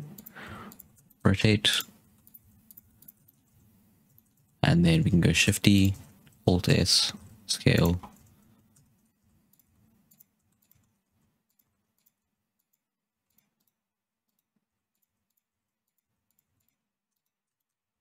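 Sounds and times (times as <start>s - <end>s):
computer keys and mouse clicking: 0.0s - 17.8s.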